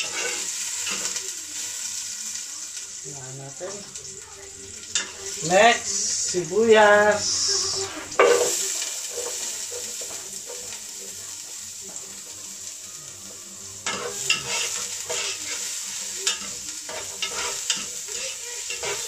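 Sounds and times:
spoon scraping a pot: 0:00.0 - 0:01.0, 0:13.8 - 0:15.6, 0:16.2 - 0:19.0
onions sizzling in hot oil: 0:00.0 - 0:19.0.

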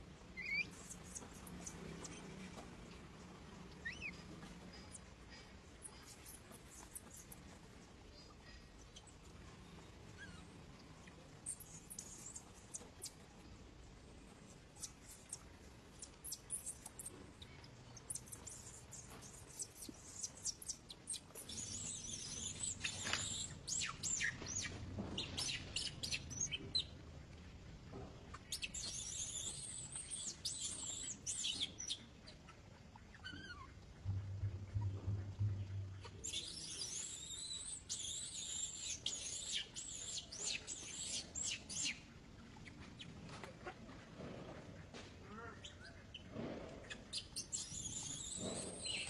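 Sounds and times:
high-pitched chirping calls: 0:33.2 - 0:42.0.

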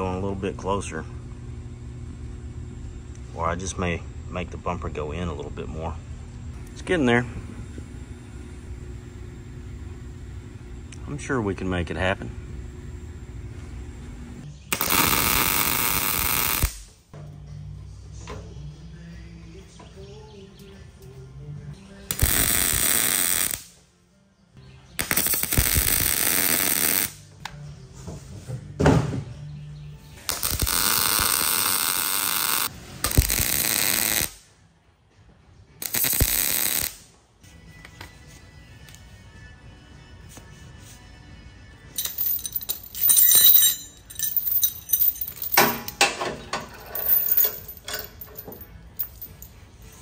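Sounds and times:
welder arc crackling: 0:14.7 - 0:16.8, 0:22.1 - 0:23.7, 0:25.0 - 0:27.2, 0:30.3 - 0:34.4, 0:35.8 - 0:37.0
steel chain rattling and clinking: 0:42.0 - 0:50.0.

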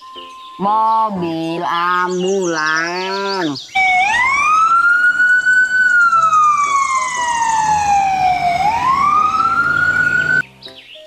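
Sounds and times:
ambulance siren wailing: 0:03.7 - 0:10.4.

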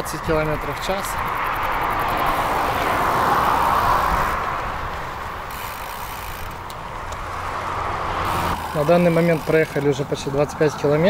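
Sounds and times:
wind over microphone: 0:00.0 - 0:05.6
bicycle tyres rolling on path: 0:00.0 - 0:11.0.

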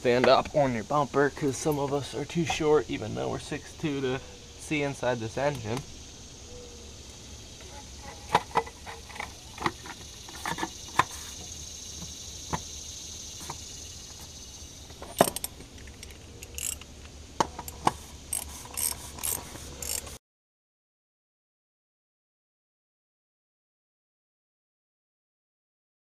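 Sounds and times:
metal tools clinking on engine parts: 0:14.9 - 0:20.2
ratchet clicks: 0:15.0 - 0:20.2.

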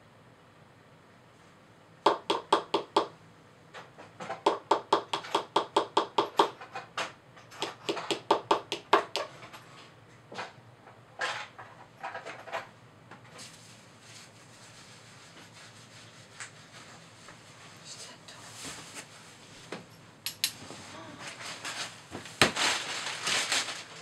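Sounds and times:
plastic mallet tapping plaster: 0:02.1 - 0:03.1, 0:04.4 - 0:06.6, 0:07.6 - 0:09.3.

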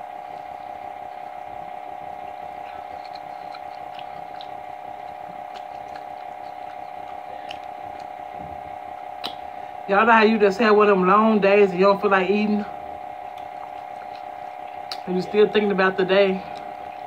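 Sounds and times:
fried chicken crackling: 0:00.0 - 0:10.3, 0:12.2 - 0:17.0
steady hum: 0:00.0 - 0:17.0.

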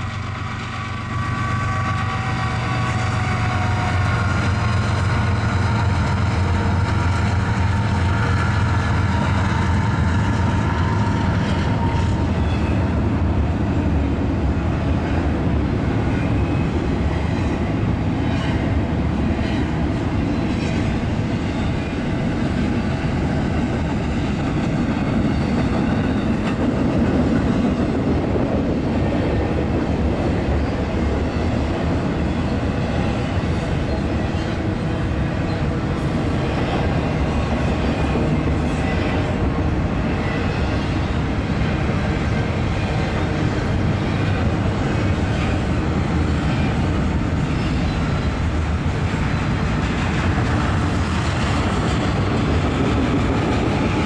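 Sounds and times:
diesel locomotive engine drone: 0:00.0 - 0:54.0
train wheels rolling on rails: 0:00.0 - 0:54.0.

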